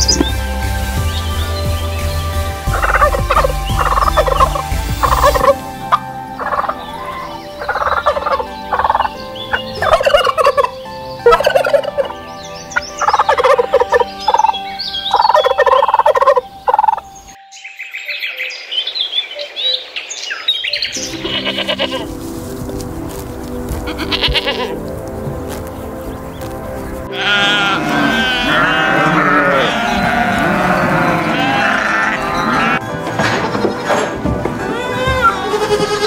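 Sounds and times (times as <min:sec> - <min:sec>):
turkeys gobbling: 0:02.6 - 0:12.2, 0:12.8 - 0:17.0, 0:21.1 - 0:22.3.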